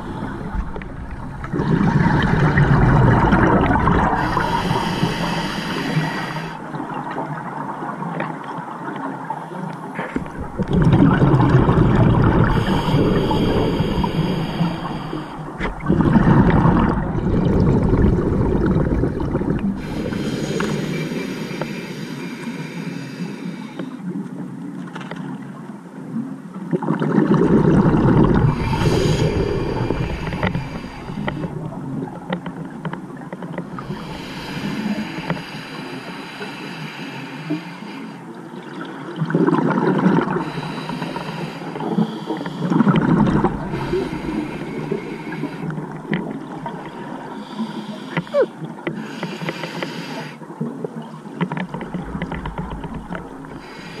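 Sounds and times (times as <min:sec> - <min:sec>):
underwater bubbling exhales: 0:00.0 - 0:09.1, 0:09.8 - 0:23.2, 0:26.7 - 0:36.8, 0:38.3 - 0:54.0
regulator inhaling hiss: 0:04.1 - 0:06.7, 0:12.4 - 0:15.6, 0:19.8 - 0:24.0, 0:28.5 - 0:31.7, 0:33.8 - 0:38.3, 0:40.4 - 0:46.0, 0:46.6 - 0:50.4, 0:53.4 - 0:54.0.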